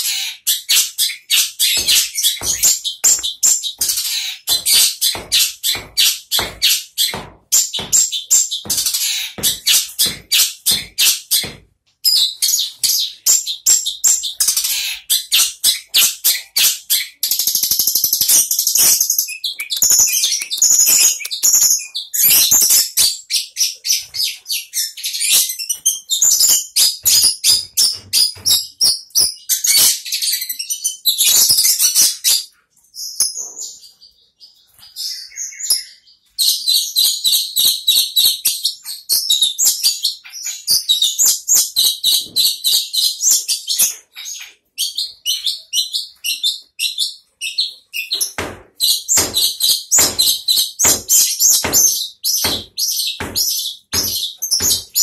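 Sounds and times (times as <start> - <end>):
bird chirping rapidly: 0.0 - 32.2, 39.3 - 55.0.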